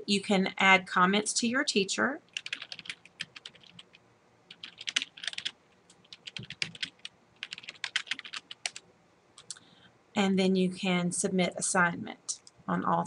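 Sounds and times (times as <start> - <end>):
keyboard typing: 2.3 - 8.8, 9.4 - 9.6.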